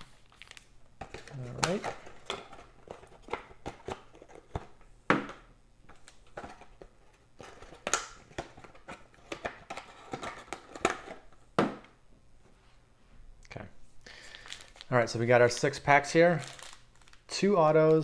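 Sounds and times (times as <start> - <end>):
plastic wrapper crinkling: 0.0 - 3.4, 14.1 - 18.0.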